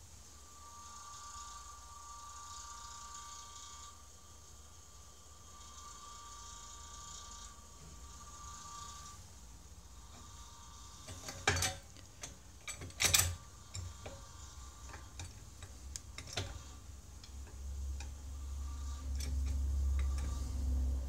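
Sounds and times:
refrigerator low hum: 0:04.7 - 0:21.0.

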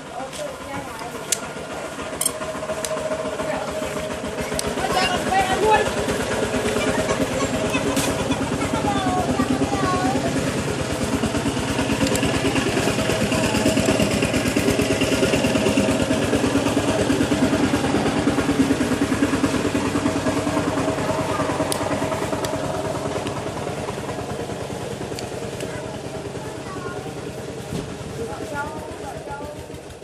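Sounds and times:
small engine idling: 0:00.0 - 0:30.0.

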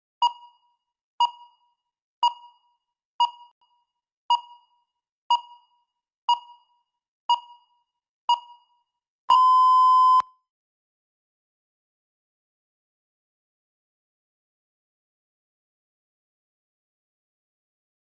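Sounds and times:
timer beeping: 0:00.2 - 0:03.6, 0:04.3 - 0:08.7, 0:09.3 - 0:10.2.

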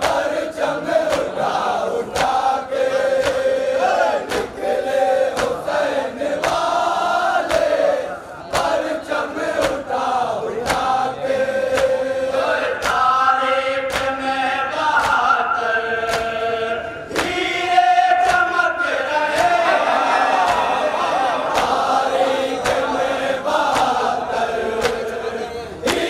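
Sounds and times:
men chanting a lament: 0:00.0 - 0:26.0
chest-beating slaps: 0:01.0 - 0:01.4, 0:02.1 - 0:02.5, 0:03.2 - 0:03.6, 0:04.2 - 0:04.6, 0:05.3 - 0:05.7, 0:07.4 - 0:07.8, 0:08.5 - 0:08.8, 0:09.6 - 0:09.9, 0:10.6 - 0:11.0, 0:11.7 - 0:12.0, 0:12.8 - 0:13.2, 0:13.9 - 0:14.2, 0:16.1 - 0:16.4, 0:17.1 - 0:17.4, 0:18.2 - 0:18.5, 0:20.4 - 0:20.8, 0:21.4 - 0:21.9, 0:22.6 - 0:23.0, 0:23.6 - 0:24.0, 0:24.8 - 0:25.1.

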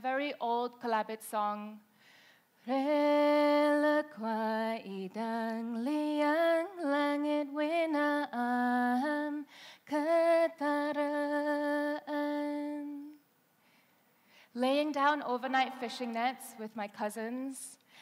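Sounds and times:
singer breathing: 0:01.9 - 0:02.6, 0:09.5 - 0:09.9, 0:13.6 - 0:14.6, 0:17.8 - 0:18.0
woman singing unaccompanied: 0:02.6 - 0:13.2, 0:14.6 - 0:17.6.

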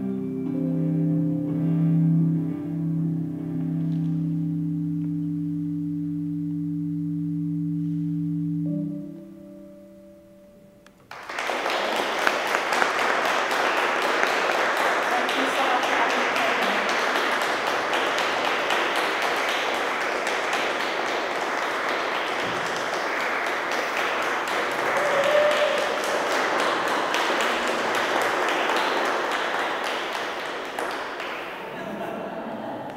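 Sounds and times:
small audience applauding: 0:11.0 - 0:32.1.

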